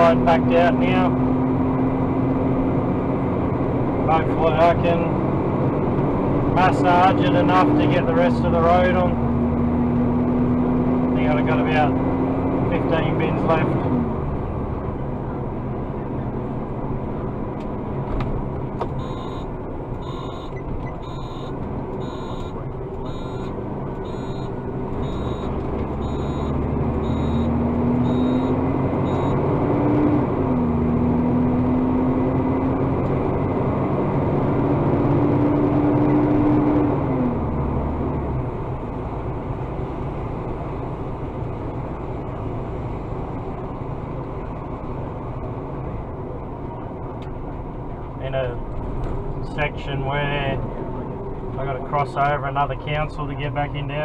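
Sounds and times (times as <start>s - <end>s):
diesel engine revving: 0.0s - 43.8s
warning beeper: 19.0s - 29.5s.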